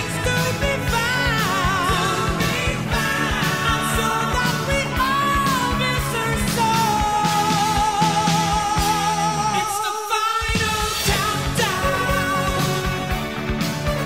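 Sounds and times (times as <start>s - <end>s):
steady drum beat: 0.0s - 9.8s, 10.4s - 14.0s
rock music with singing: 0.0s - 14.0s.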